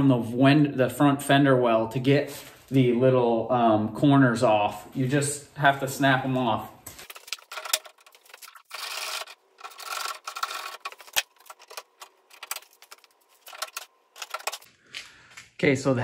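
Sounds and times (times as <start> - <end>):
handling rustling and rubbing: 6.9 - 14.7.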